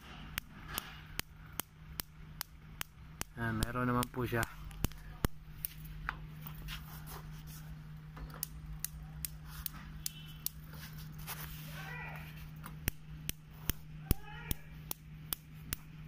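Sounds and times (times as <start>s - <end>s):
spark igniter clicking: 0.0s - 5.8s, 8.4s - 10.7s, 12.6s - 16.0s.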